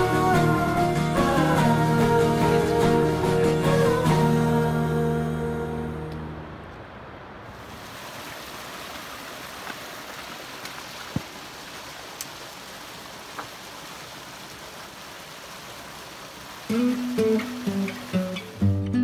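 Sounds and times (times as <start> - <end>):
creek water rushing over rocks: 7.4 - 18.8.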